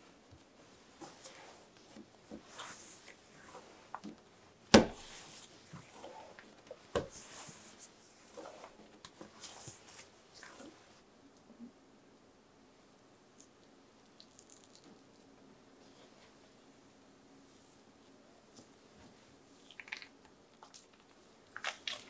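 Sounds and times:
hands kneading dough: 0:00.0 - 0:11.0, 0:17.5 - 0:22.0.

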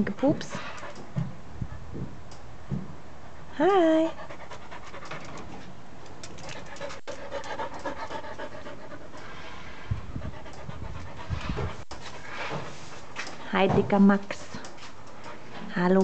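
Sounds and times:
dog panting: 0:00.3 - 0:01.3, 0:04.0 - 0:13.7, 0:14.3 - 0:15.7.

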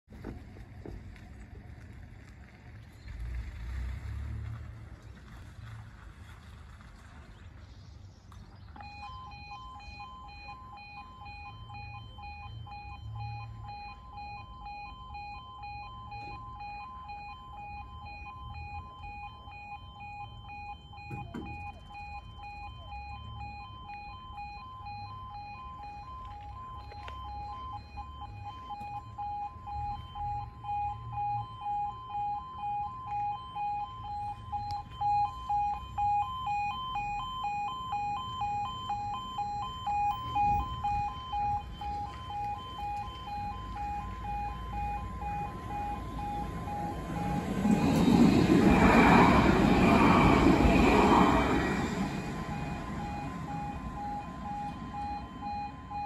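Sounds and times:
level crossing alarm beeping: 0:08.8 - 0:56.0
tram wheels on rails: 0:41.6 - 0:55.9.

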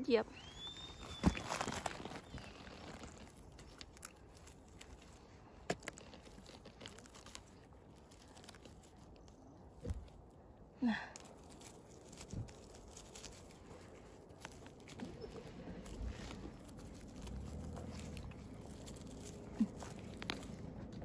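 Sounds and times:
rustling of forest litter: 0:00.2 - 0:21.0.

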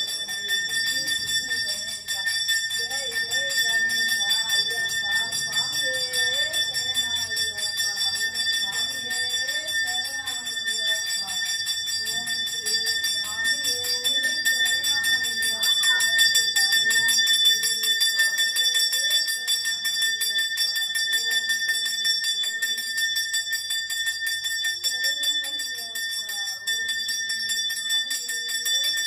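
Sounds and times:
hand bell ringing rapidly: 0:00.0 - 0:29.0.

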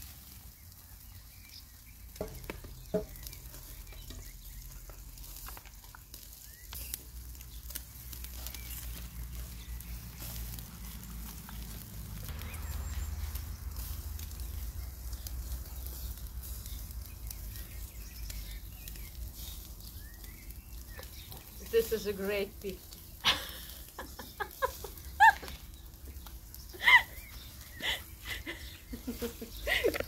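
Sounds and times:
meat sizzling on grill: 0:00.0 - 0:30.0
low rumble: 0:07.4 - 0:21.7.

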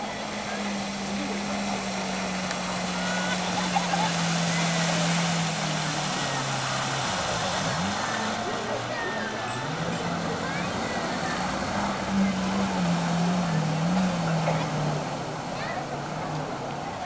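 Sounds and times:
hiss of spray and wake: 0:00.0 - 0:09.6
jet ski engine running: 0:00.0 - 0:17.0.

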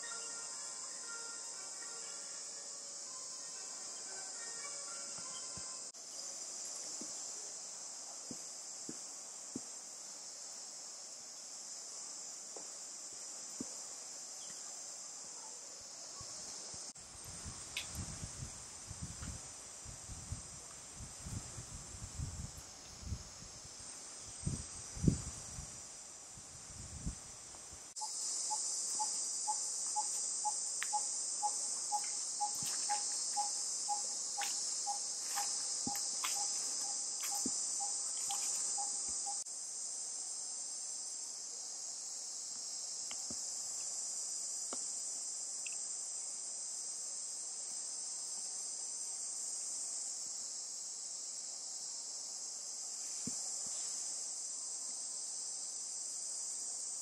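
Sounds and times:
insect chorus drone: 0:00.0 - 0:57.0.

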